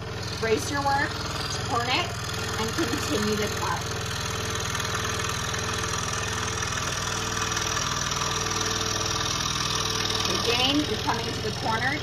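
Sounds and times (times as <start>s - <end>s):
scroll saw cutting wood: 0.0s - 12.0s.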